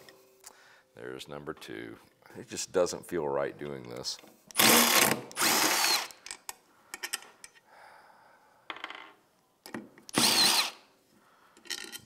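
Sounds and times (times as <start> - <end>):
cordless power driver spinning: 10.1 - 10.8.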